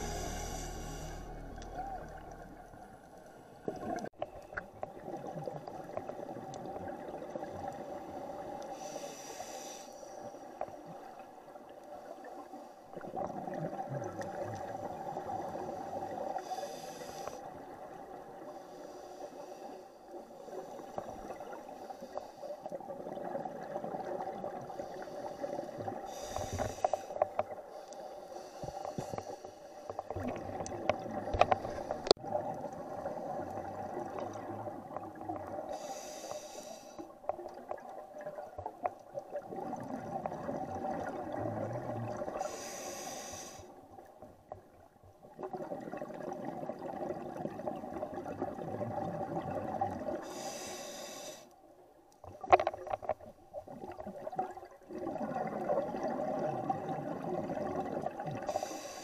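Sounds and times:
regulator hissing inhale: 0.0 - 1.7, 8.7 - 10.3, 16.4 - 17.5, 18.5 - 21.0, 24.7 - 30.0, 35.7 - 37.2, 42.4 - 43.8, 50.2 - 51.6, 58.5 - 59.0
bubbling exhale: 0.0 - 2.5.

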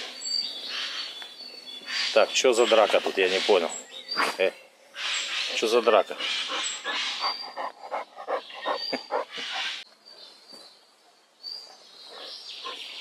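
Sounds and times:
bird chirping: 0.0 - 13.0
dogs panting: 6.4 - 9.8.

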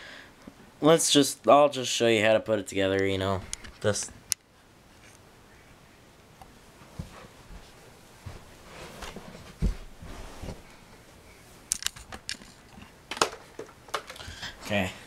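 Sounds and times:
soft thumps on carpet: 6.8 - 10.6.

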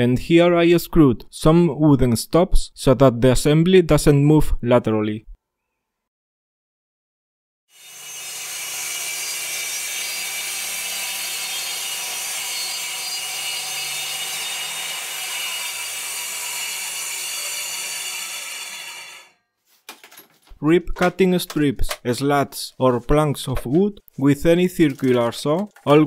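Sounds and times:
circular saw cutting wood: 7.7 - 19.4.

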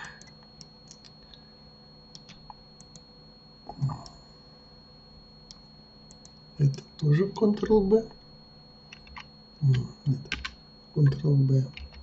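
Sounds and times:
keyboard and mouse clicks: 0.0 - 1.1, 2.1 - 3.0, 8.9 - 10.6
high electrical whine: 0.0 - 12.0.

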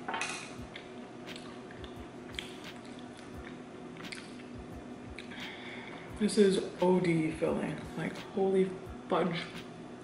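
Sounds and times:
chewing soft food: 0.7 - 5.5.

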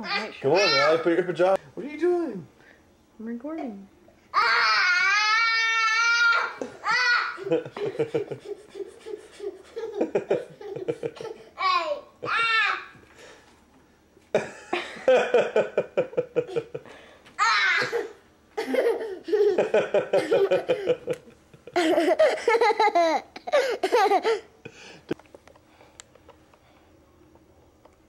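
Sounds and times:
child squealing: 0.1 - 1.1, 4.4 - 7.4, 11.6 - 12.9, 17.4 - 18.1
young child laughing: 6.3 - 12.8, 15.5 - 16.8, 17.4 - 24.5.

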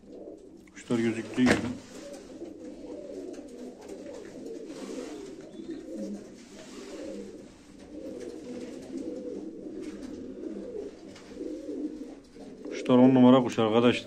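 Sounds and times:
pigeons cooing: 0.0 - 14.0.

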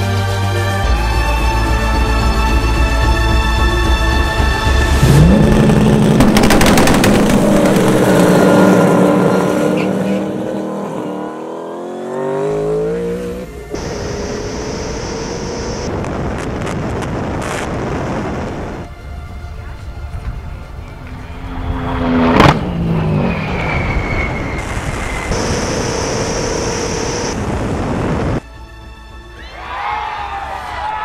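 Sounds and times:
car engine accelerating: 4.6 - 16.0, 20.2 - 28.4
rushing noise: 13.5 - 19.2, 20.0 - 28.4.

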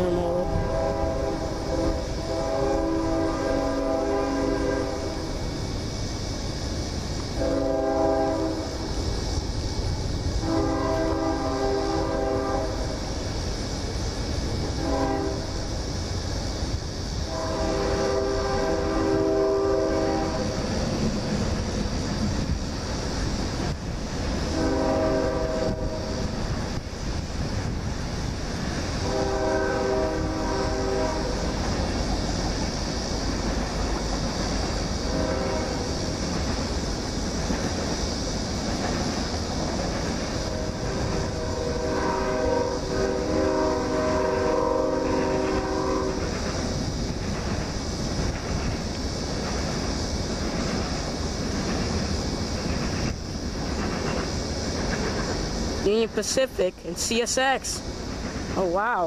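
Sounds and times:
locomotive air horn blasts: 0.0 - 5.3, 7.4 - 8.8, 10.4 - 12.9, 14.8 - 15.4, 17.3 - 20.5, 24.5 - 26.2, 29.0 - 31.4, 35.1 - 35.9, 40.4 - 46.3.

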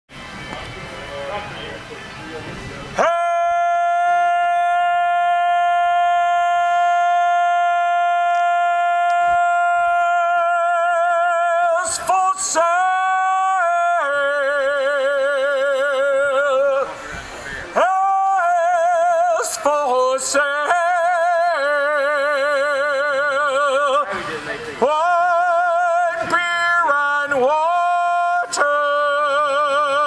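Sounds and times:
man singing unaccompanied: 3.0 - 30.0
singer breathing in: 16.9 - 17.7.

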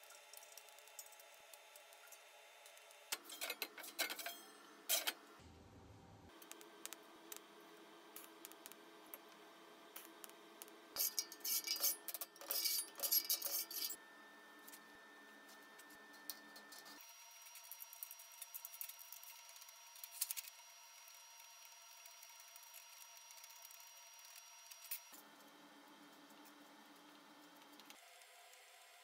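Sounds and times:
steel tools clicking and scraping: 3.1 - 5.2, 11.0 - 14.0.

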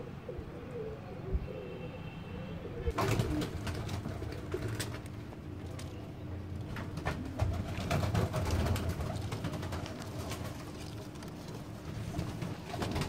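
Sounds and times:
pigeons cooing: 0.0 - 6.0.

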